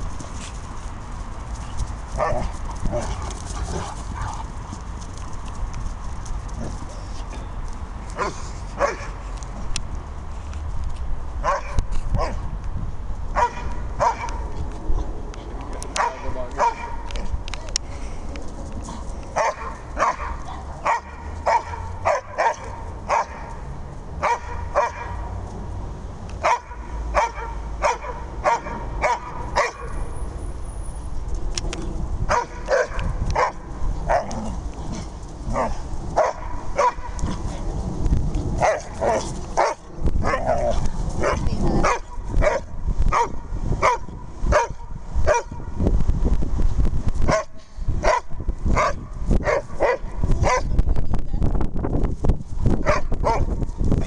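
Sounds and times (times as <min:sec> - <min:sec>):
dogs barking and yipping: 0:01.7 - 0:04.8, 0:08.2 - 0:09.2, 0:11.4 - 0:12.4, 0:13.4 - 0:14.6, 0:15.9 - 0:17.3, 0:18.9 - 0:25.3, 0:26.4 - 0:30.1, 0:32.3 - 0:37.7, 0:38.6 - 0:45.6, 0:47.3 - 0:50.7, 0:52.8 - 0:53.6.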